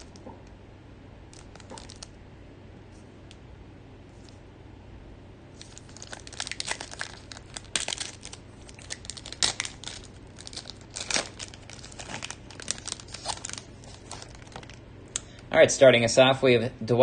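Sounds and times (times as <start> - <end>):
foil wrapper crinkling and tearing: 1.3 - 2.1, 5.6 - 14.8.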